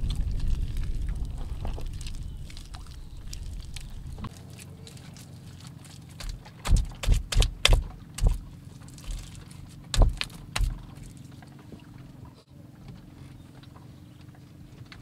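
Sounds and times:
hands slapping wet mud: 0:00.0 - 0:11.2.

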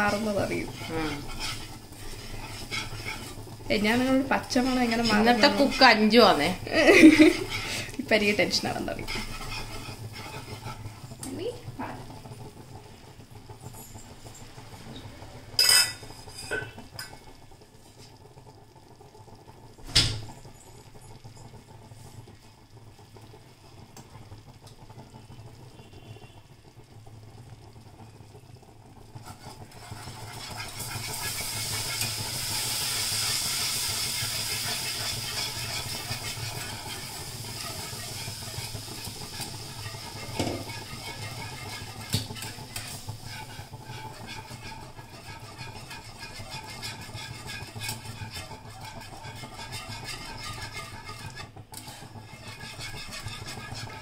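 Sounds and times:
whisk clinking against pan: 0:00.0 - 0:11.2, 0:29.2 - 0:54.0
milk hissing in hot pan: 0:00.0 - 0:54.0.

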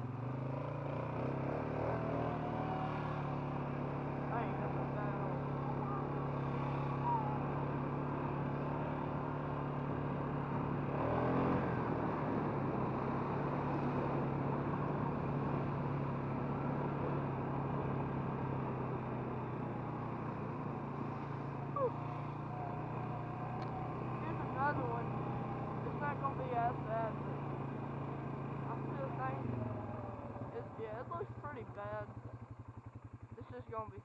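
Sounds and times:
atv engine running: 0:00.0 - 0:34.0.

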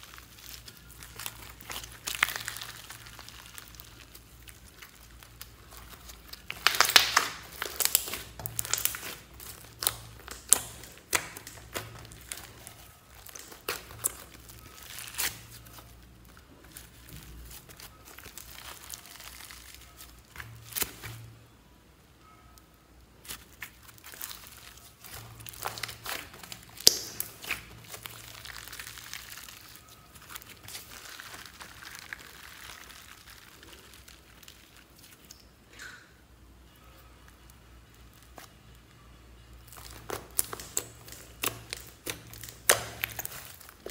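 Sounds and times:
sticky slime crackling and popping: 0:00.0 - 0:21.4, 0:22.6 - 0:36.0, 0:37.2 - 0:43.9.

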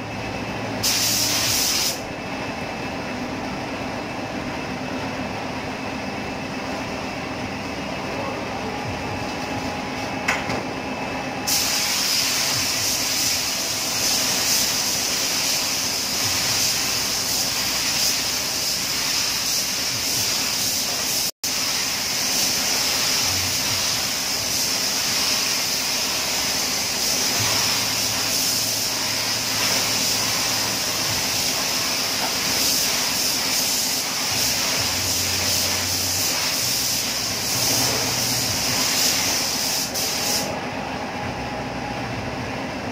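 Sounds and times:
steady low hum: 0:00.0 - 0:42.9
paint spray gun hissing: 0:00.8 - 0:02.0, 0:11.5 - 0:40.5.

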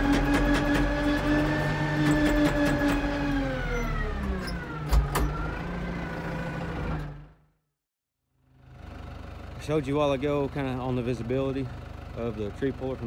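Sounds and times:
tractor diesel engine running: 0:08.5 - 0:13.0.

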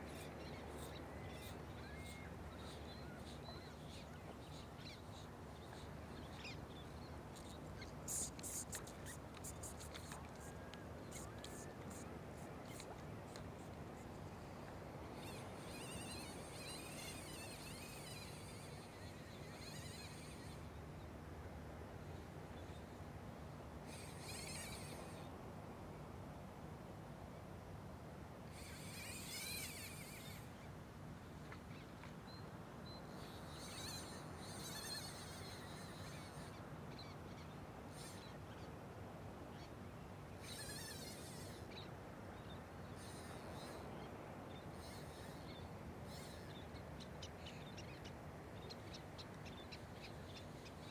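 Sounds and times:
low steady hiss: 0:00.0 - 0:50.9
insect-like chirring calls: 0:07.4 - 0:12.0, 0:15.1 - 0:20.6, 0:23.9 - 0:25.2, 0:28.6 - 0:30.4, 0:33.2 - 0:36.6, 0:40.4 - 0:41.6.

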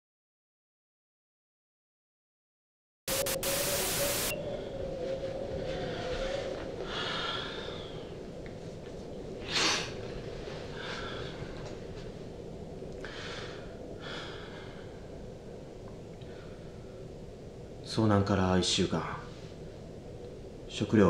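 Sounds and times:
steady low hum: 0:03.1 - 0:21.0
man breathing heavily: 0:05.6 - 0:08.4, 0:09.5 - 0:11.7, 0:13.0 - 0:15.3
sharp snort-like exhale: 0:09.5 - 0:09.9.

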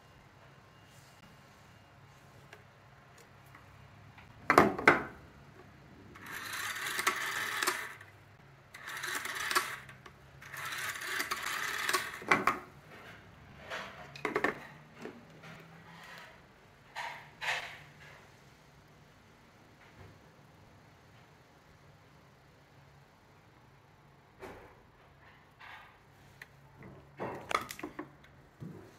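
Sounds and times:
rotary dial whirring rattle: 0:06.1 - 0:12.5.

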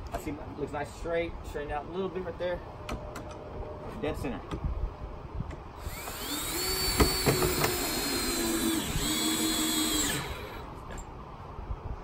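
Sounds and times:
cordless drill whining: 0:05.8 - 0:10.7.

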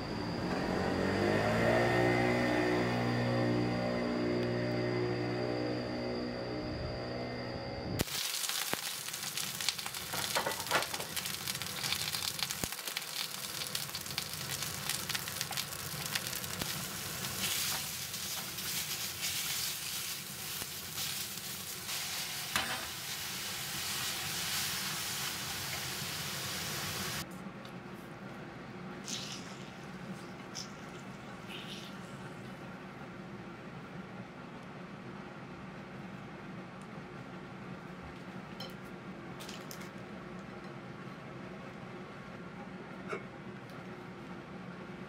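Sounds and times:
meat and vegetables sizzling in pan: 0:08.0 - 0:27.2.

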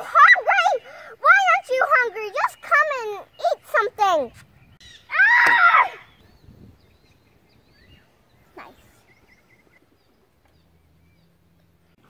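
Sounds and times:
faint bird chirps: 0:02.4 - 0:05.1, 0:06.0 - 0:11.5.

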